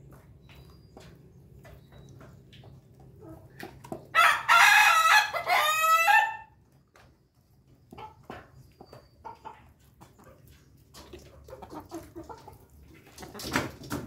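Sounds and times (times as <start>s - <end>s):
chickens scratching and pecking: 0.0s - 14.0s
rooster crowing: 4.2s - 6.5s.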